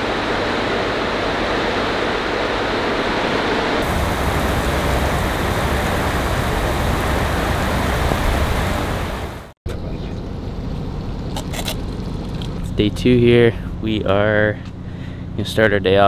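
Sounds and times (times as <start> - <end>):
heavy rain pouring: 3.8 - 9.6.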